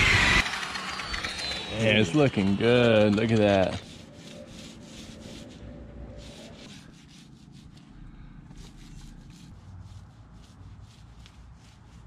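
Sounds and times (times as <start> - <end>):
paint roller swishing: 2.6 - 7.8, 8.5 - 12.0.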